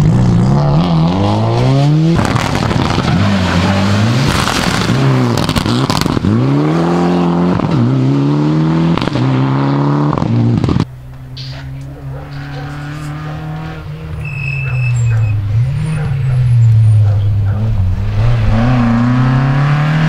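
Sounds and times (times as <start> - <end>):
rally car engines revving: 0.0 - 20.0
exhaust pops and crackles: 2.2 - 3.3, 4.2 - 6.3, 10.1 - 13.1.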